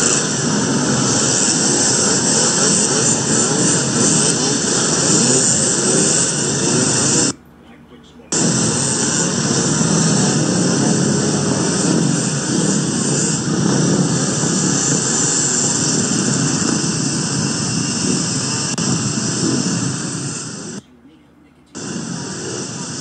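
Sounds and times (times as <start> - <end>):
small motors droning: 0.0 - 7.4, 8.3 - 20.8, 21.8 - 23.0
constant hiss: 0.0 - 23.0.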